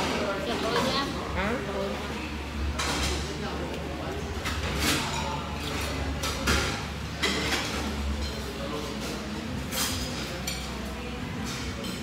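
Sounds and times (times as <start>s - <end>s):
cutlery clinking on dishes: 4.4s - 12.0s.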